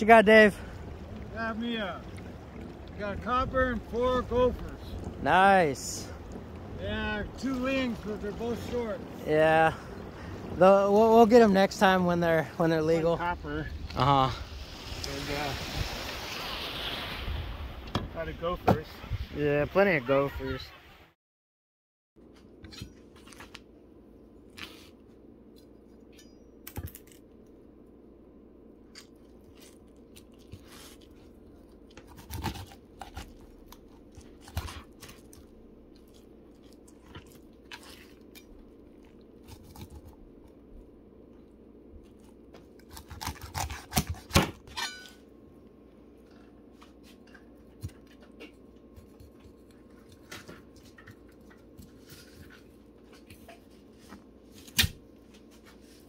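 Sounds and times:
low hum: 0.0 - 20.9, 22.2 - 56.0
knife cutting and scraping fish: 24.5 - 26.2, 28.9 - 40.6, 42.0 - 45.1, 46.6 - 56.0.

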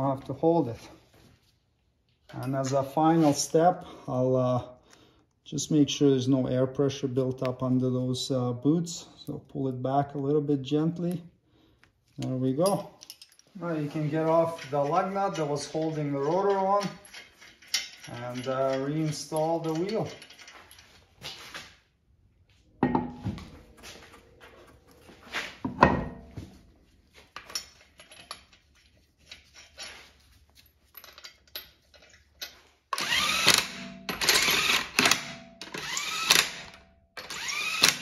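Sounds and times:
cordless power tool spinning: 33.0 - 38.0.

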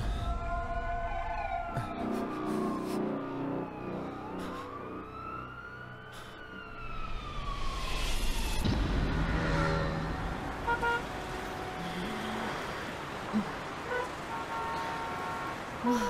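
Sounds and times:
siren wailing: 0.0 - 12.6
car passing with engine and tyre rumble: 6.6 - 16.0
car horn toots: 10.6 - 11.2.

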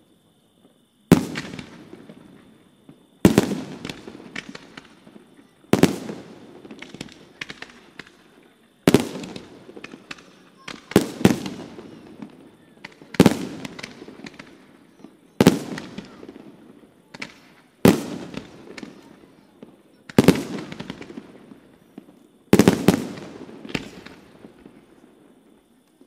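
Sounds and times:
firework crackles: 1.1 - 26.0
firework shells bursting: 3.2 - 8.2, 8.9 - 16.4.

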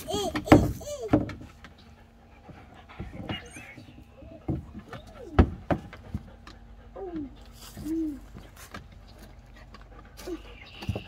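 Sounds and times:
dog panting: 0.0 - 11.0.

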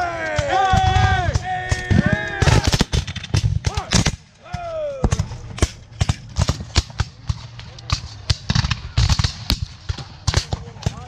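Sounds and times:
men shouting: 0.0 - 2.8, 3.7 - 5.2
musket shots cracking: 0.2 - 4.4, 5.0 - 11.0.

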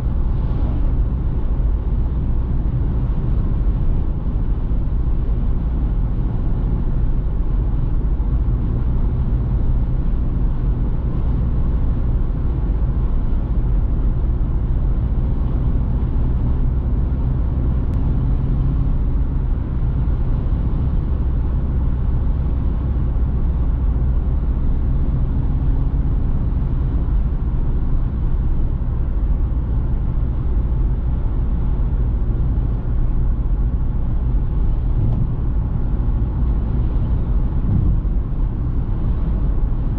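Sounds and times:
car engine drone: 0.0 - 39.9
road and wind noise: 0.0 - 39.9.

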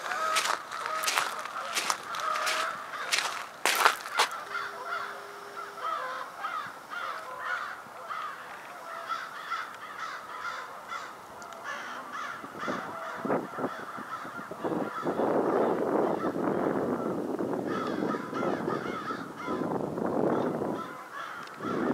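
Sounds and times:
scuffs: 0.0 - 4.4
birds calling in harsh notes: 0.0 - 21.9.

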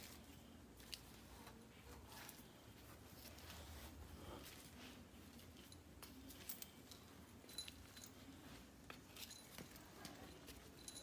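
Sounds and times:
light jingly clicks: 5.6 - 8.4, 9.0 - 11.0.

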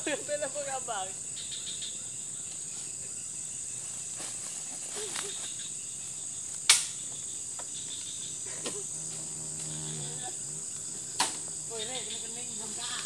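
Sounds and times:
insects chirring: 0.0 - 13.0
sharp crack: 6.6 - 7.0, 11.2 - 11.4.

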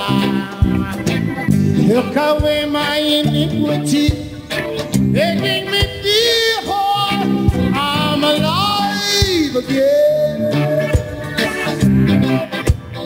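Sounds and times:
male singer holding long notes: 0.0 - 1.1, 1.8 - 4.4, 5.1 - 11.0
electric guitars: 0.0 - 13.0.

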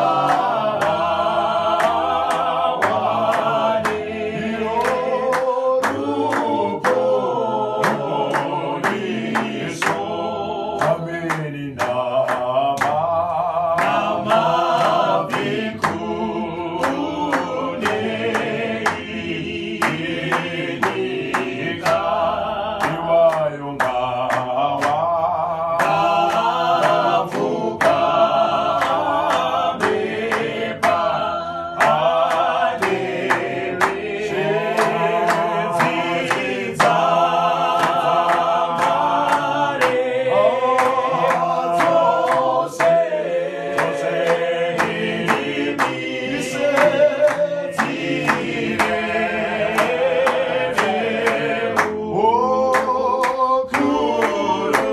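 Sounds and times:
group singing a cappella hymn: 0.0 - 54.9
hand claps: 0.0 - 54.9.

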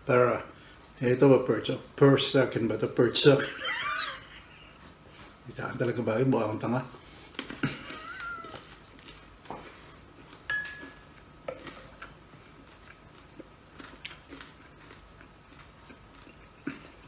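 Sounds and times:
person chewing: 7.0 - 17.0
spoon tapping dishes: 10.5 - 11.7.

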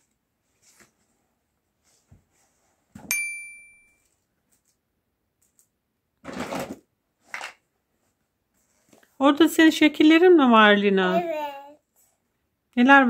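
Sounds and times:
hard object clinking with ringing: 3.1 - 4.0.

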